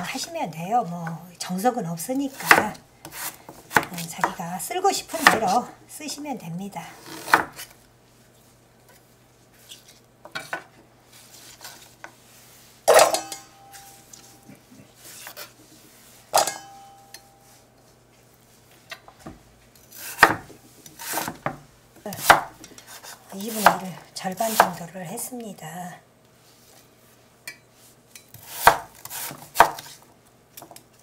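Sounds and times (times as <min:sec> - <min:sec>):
knife chopping on wooden board: 0:02.4 - 0:04.4, 0:07.0 - 0:07.7, 0:20.0 - 0:23.8, 0:24.5 - 0:24.8, 0:28.4 - 0:30.0
metal kitchenware clanking: 0:12.9 - 0:14.0, 0:16.3 - 0:17.3.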